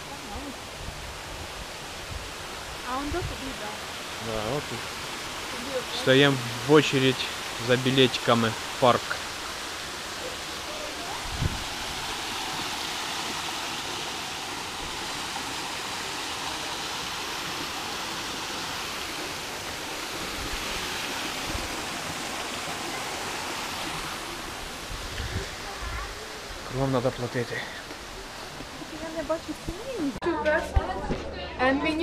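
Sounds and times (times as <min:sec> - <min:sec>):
waterfall splashing: 0:00.0 - 0:30.2.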